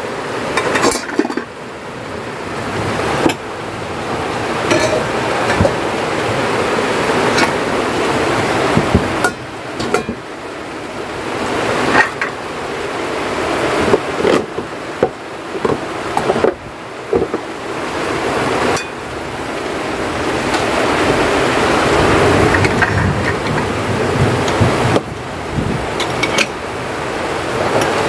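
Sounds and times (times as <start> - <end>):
heavy rain: 0.0 - 28.0
strong wind: 0.0 - 28.0
pots and glasses set on shelf: 0.5 - 1.5, 4.6 - 5.8, 7.2 - 7.6, 8.8 - 10.2, 11.8 - 12.4, 18.7 - 19.0, 26.0 - 26.6.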